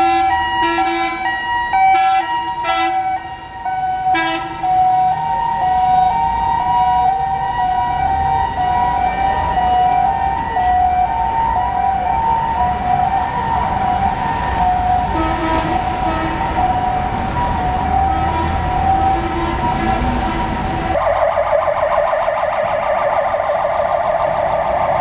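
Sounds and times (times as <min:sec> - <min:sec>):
two-tone fire engine siren: 0:00.0 - 0:25.0
truck engine rumbling: 0:06.2 - 0:25.0.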